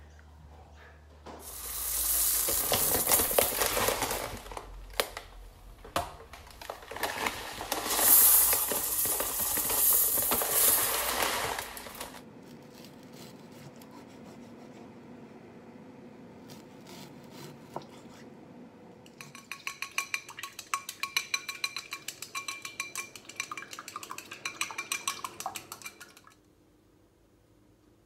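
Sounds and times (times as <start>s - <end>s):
plastic bag crinkling: 1.5s - 5.4s, 6.2s - 12.2s.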